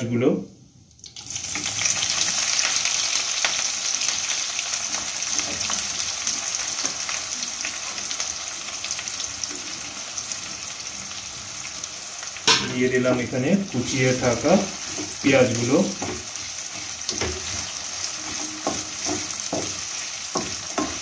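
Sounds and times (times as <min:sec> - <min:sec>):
onions sizzling in hot oil: 0:00.7 - 0:21.0.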